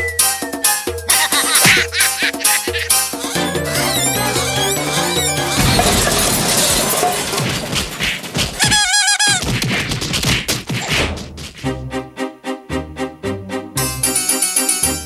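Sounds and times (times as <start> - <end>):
warbling cartoon tone: 1.1 - 5.7
crashing and smashing impacts: 1.5 - 11.7
quick knocks: 5.4 - 11.7.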